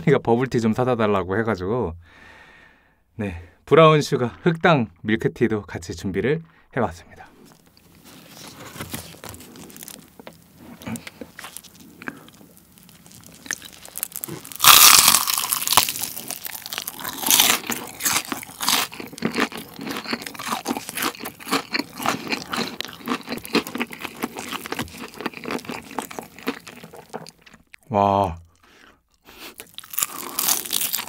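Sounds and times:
handling rustles: 7.5 - 11.6
chewing: 7.5 - 27.9, 28.6 - 31.0
crunching fried chicken: 8.0 - 27.9, 29.3 - 31.0.

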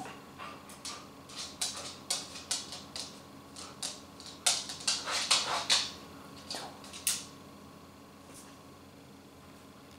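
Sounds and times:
dog claws clicking on hard floor: 0.7 - 7.3.

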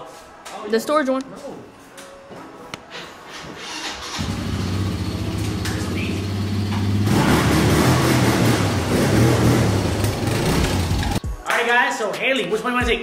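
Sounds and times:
small atv engine revving: 4.1 - 11.2.

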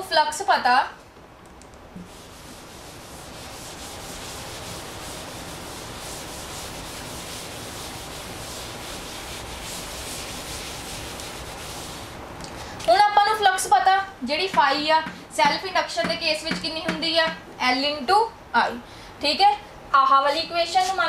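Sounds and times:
duster rubbing on chalkboard: 2.0 - 12.2, 20.3 - 21.0.

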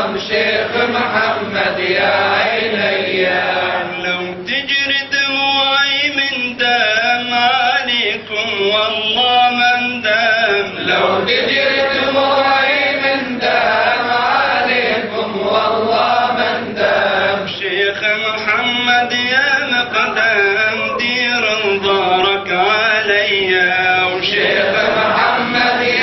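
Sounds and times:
man chanting: 3.8 - 11.3, 17.4 - 26.0.

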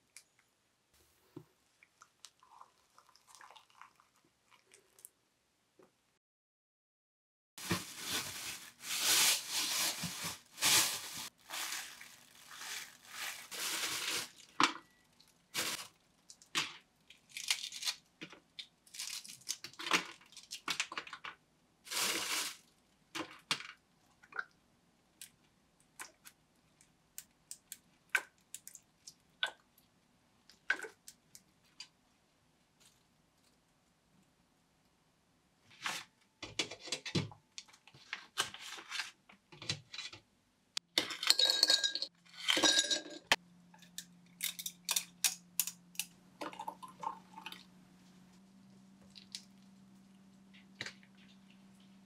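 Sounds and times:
plastic bag rustling: 7.6 - 16.2, 21.9 - 22.7.

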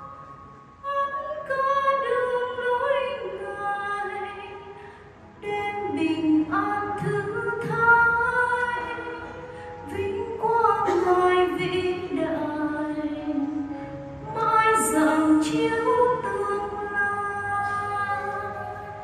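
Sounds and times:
women singing a hymn: 5.4 - 13.6.

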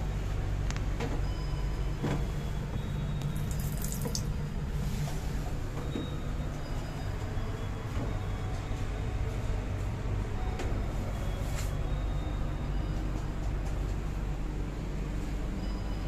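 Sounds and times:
train carriage low hum: 0.0 - 16.0
water spurting from tap: 3.4 - 4.3.

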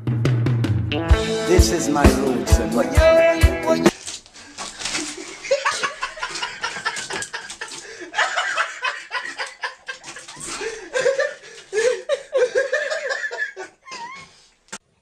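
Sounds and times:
music with drum beat: 0.0 - 3.9
people laughing: 5.0 - 14.2.

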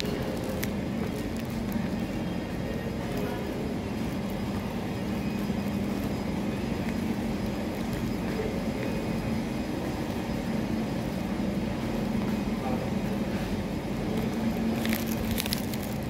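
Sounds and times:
constant hum: 0.0 - 16.0.

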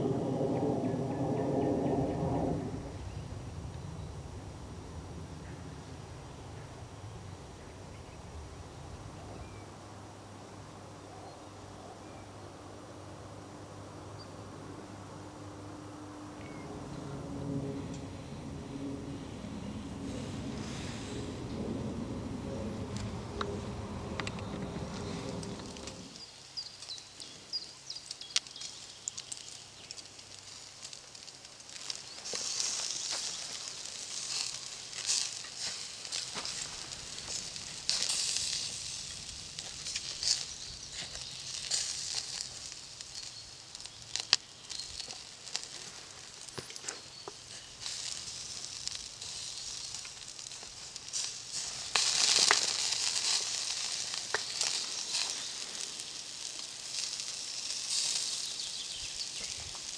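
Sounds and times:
coals crackling and popping: 16.3 - 59.9
meat sizzling on a grill: 18.5 - 21.7, 22.7 - 59.9.

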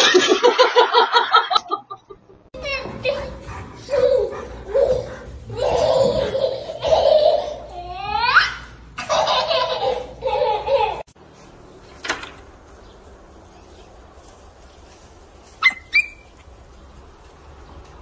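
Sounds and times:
baby laughing: 3.1 - 11.1.

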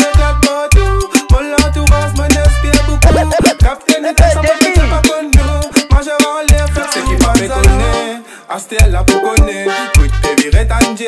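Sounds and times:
pitch-bending melody line: 0.0 - 5.7, 6.6 - 8.2
hip hop beat: 0.0 - 11.0
deep bass notes: 0.2 - 3.6, 4.2 - 5.7, 6.5 - 8.0, 8.8 - 9.1.

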